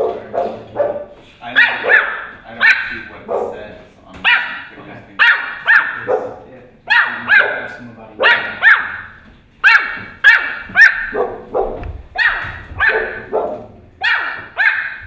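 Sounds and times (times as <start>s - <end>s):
puppy yapping barks: 0.0s - 3.6s, 4.2s - 15.0s.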